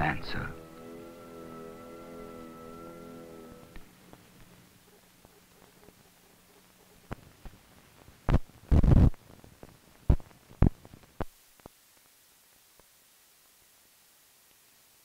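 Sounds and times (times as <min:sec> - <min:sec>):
faint hiss: 0:00.0 - 0:15.0
film soundtrack thumps and pops: 0:08.2 - 0:11.7.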